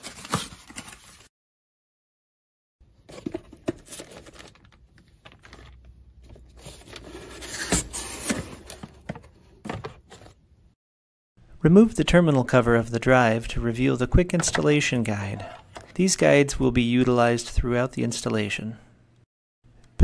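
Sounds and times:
packaging rustling and crinkling: 0:00.0 - 0:01.3, 0:03.1 - 0:09.2.

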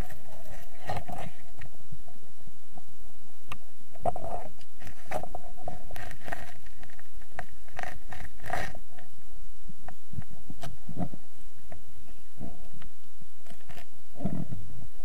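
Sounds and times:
underwater gurgling water movement: 0:00.0 - 0:01.7, 0:03.9 - 0:09.0, 0:13.5 - 0:14.6.

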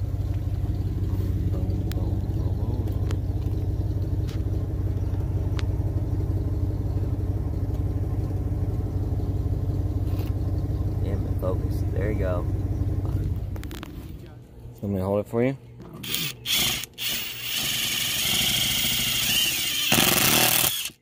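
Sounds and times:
low machine hum: 0:00.0 - 0:21.0.

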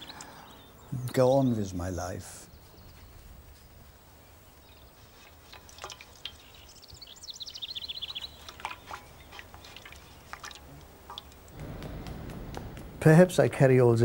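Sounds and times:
water splashing in metal basin: 0:05.2 - 0:06.8, 0:08.0 - 0:11.6.

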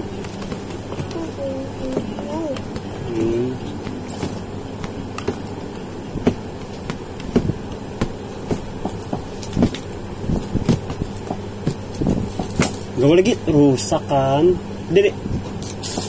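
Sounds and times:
low background hum: 0:00.0 - 0:16.0
shoe thumping on hard floor: 0:04.1 - 0:05.5, 0:06.1 - 0:12.8.

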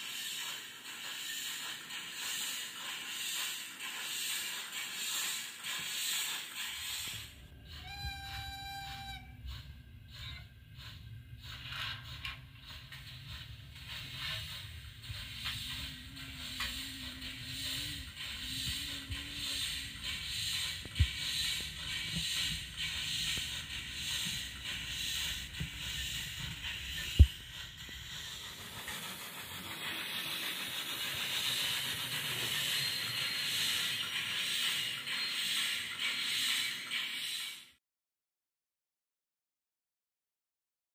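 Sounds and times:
model train rumbling on track: 0:00.0 - 0:37.8
steam chuffing and hiss: 0:00.0 - 0:37.8
model train whistle blast: 0:07.6 - 0:10.5.

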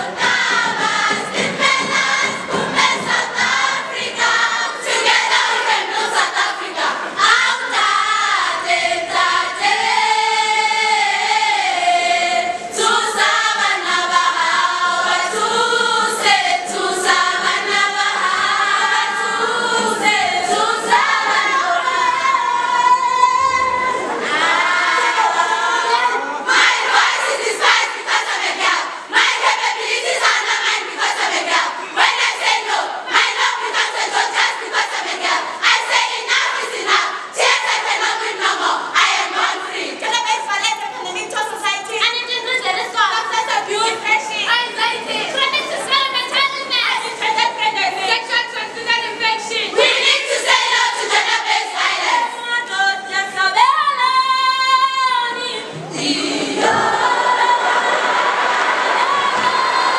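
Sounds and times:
sharp percussive beats: 0:00.0 - 0:06.3
choir singing in harmony: 0:00.0 - 0:41.6, 0:49.4 - 0:59.9.

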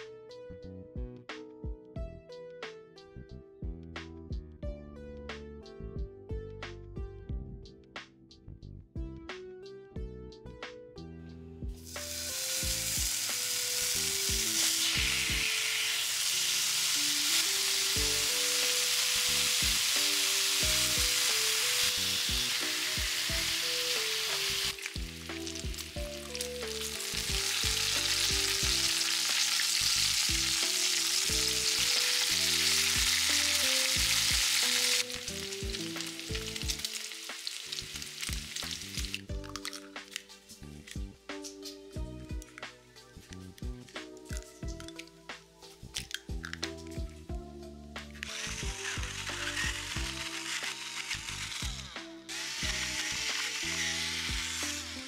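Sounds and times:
light background music: 0:00.0 - 0:55.0
bacon sizzling in a pan: 0:11.8 - 0:40.6, 0:48.2 - 0:55.0.

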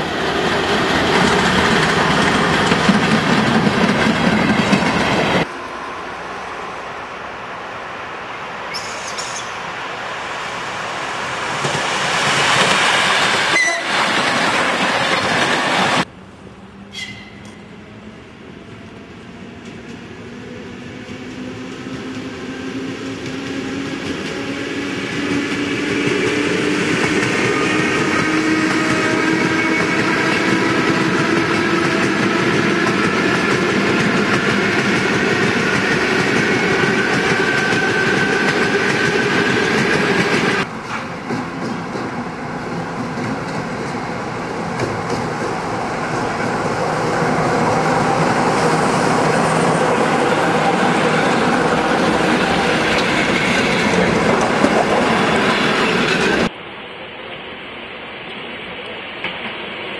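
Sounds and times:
train wheels rushing on rails: 0:00.0 - 0:56.6, 0:58.1 - 0:59.9
train passing rumble: 0:00.0 - 0:59.9
train wheels clickety-clack: 0:00.4 - 0:05.5, 0:11.5 - 0:16.1, 0:21.0 - 0:56.5.

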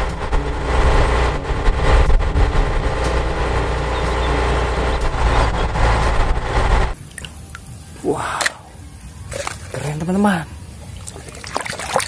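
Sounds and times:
diesel engine idling: 0:00.0 - 0:07.0.

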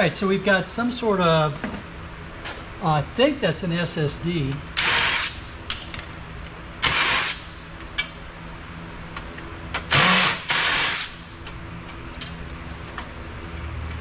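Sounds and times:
cordless drill whirring: 0:04.8 - 0:05.3, 0:06.8 - 0:07.4, 0:09.9 - 0:11.2.

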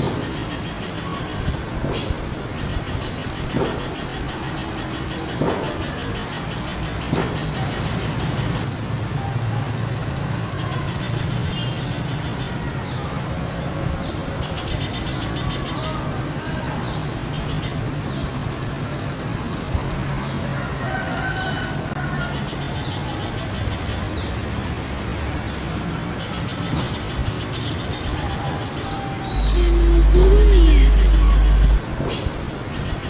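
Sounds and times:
low hum: 0:29.3 - 0:31.9
high thin whine: 0:29.4 - 0:31.8.

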